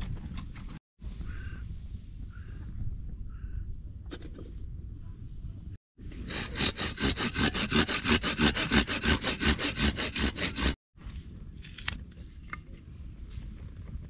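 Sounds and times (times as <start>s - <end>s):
hand saw cutting wood: 6.0s - 10.8s.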